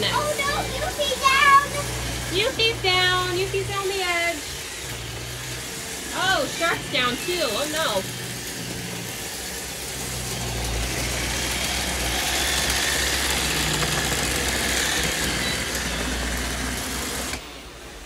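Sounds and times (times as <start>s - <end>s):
robot vacuum cleaner whirring: 0.0s - 18.0s.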